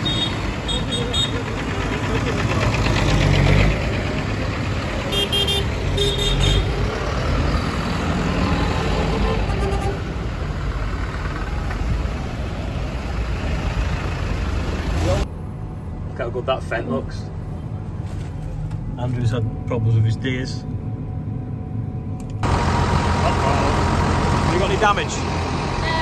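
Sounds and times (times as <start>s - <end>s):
tractors driving past: 0.0s - 15.3s, 22.4s - 26.0s
horn toots: 5.0s - 6.8s.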